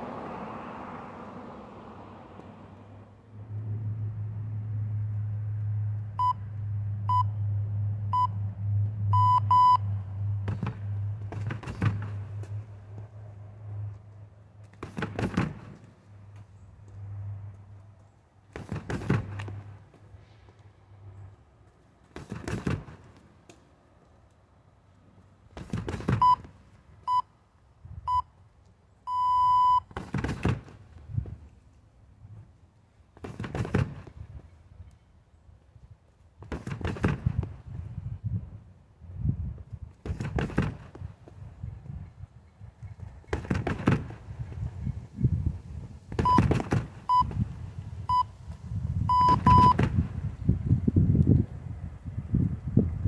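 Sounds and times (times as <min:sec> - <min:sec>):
electronic timer beeps: 0:07.1 - 0:07.3, 0:09.1 - 0:09.8, 0:29.1 - 0:29.9, 0:49.1 - 0:49.8.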